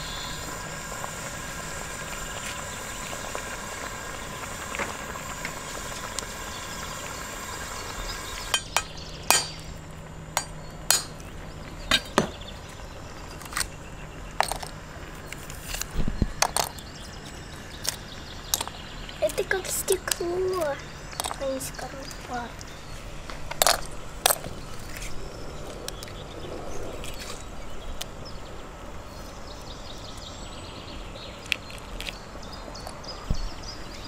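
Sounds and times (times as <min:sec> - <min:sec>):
egg sizzling in a pan: 0:00.0 - 0:12.1
eggshell cracking: 0:16.4 - 0:18.9.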